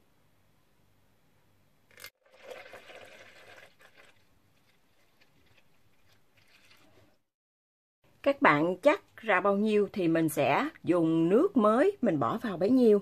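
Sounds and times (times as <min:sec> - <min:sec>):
water pouring into a jug: 0:01.9 - 0:07.1.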